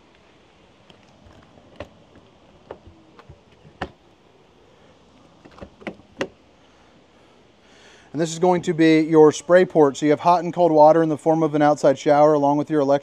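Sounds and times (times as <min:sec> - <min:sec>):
light clicks and knocks: 0:00.9 - 0:04.0, 0:05.4 - 0:06.4.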